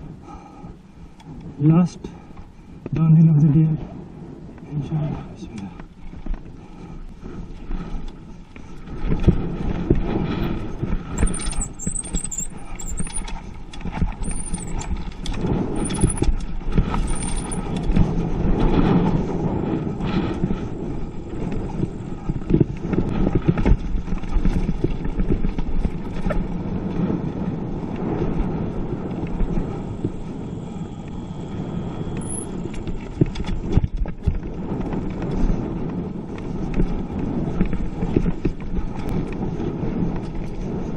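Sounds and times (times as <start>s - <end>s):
tyres rolling over dirt: 7.2s - 40.9s
bike and camera mount rattling: 11.1s - 18.2s.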